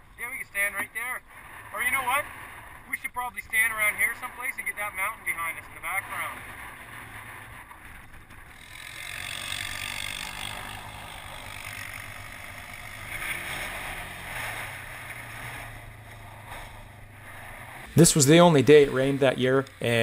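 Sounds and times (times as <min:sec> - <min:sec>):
quad engine running: 0:05.6 - 0:20.0.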